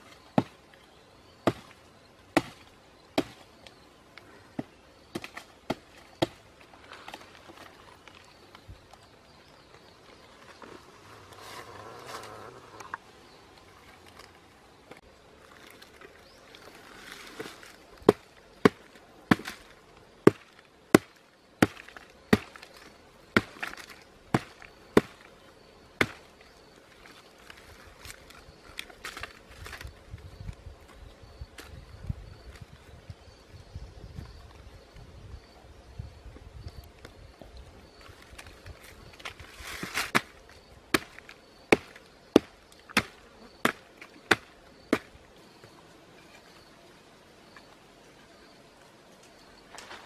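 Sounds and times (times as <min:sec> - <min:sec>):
stone chopping into log: 0:01.5 - 0:01.8, 0:02.4 - 0:03.4, 0:04.6 - 0:06.4, 0:17.4 - 0:22.7, 0:23.3 - 0:25.3, 0:26.0 - 0:26.3, 0:39.8 - 0:45.2
wood fibres tearing: 0:15.4 - 0:25.3, 0:38.2 - 0:45.1
rotten wood splintering: 0:15.5 - 0:25.3, 0:26.0 - 0:29.9, 0:38.1 - 0:45.2.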